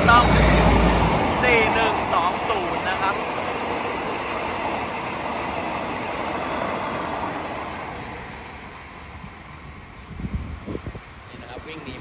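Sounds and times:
train coaches rumbling past: 0:00.0 - 0:12.0.

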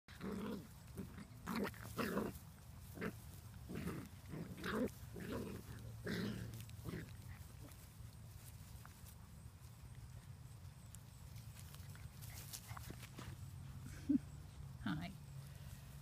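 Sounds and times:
puppies growling: 0:00.1 - 0:08.1.

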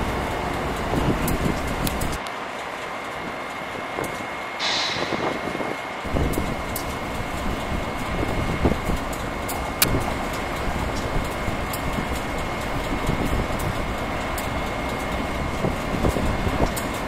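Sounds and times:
wind buffeting microphone: 0:00.0 - 0:02.2, 0:03.2 - 0:17.0
train moving: 0:00.0 - 0:17.0
sharp click: 0:04.6 - 0:05.7.

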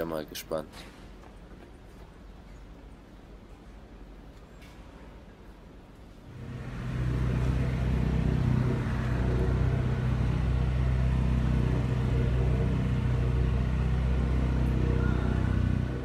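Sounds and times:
motorized toy cranes droning: 0:06.3 - 0:16.0.

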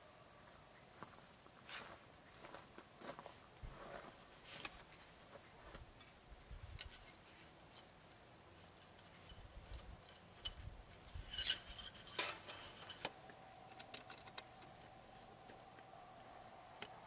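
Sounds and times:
metal camp gear clinking: 0:06.0 - 0:14.9.

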